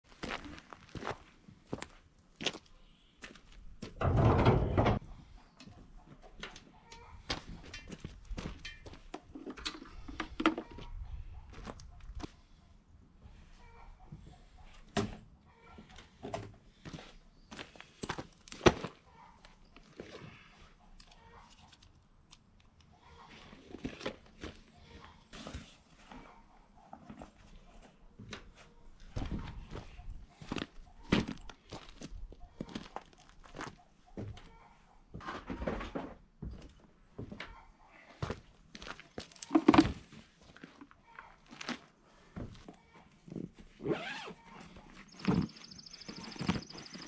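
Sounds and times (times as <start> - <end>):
footsteps on gravel: 0.1 - 3.6
footsteps inside metal container: 3.8 - 5.0
tool bags rustling and knocking: 39.2 - 40.8.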